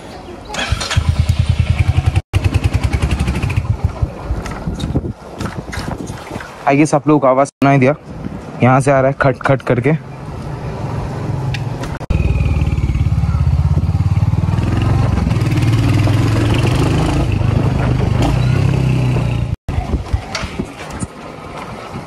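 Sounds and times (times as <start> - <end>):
motorcycle engine running: 0.6 - 4.3, 12.1 - 19.8.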